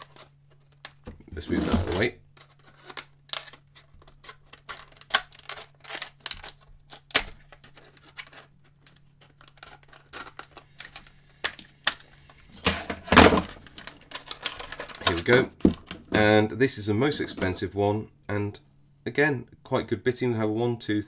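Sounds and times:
plastic crackling: 2.4 - 16.0
scissors snipping plastic: 2.8 - 12.0.

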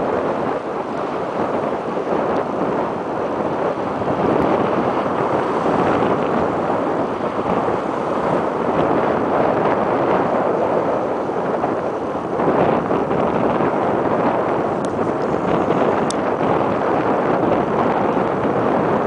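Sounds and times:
choppy water washing: 0.0 - 19.0
wind blowing across microphone: 0.0 - 19.0.

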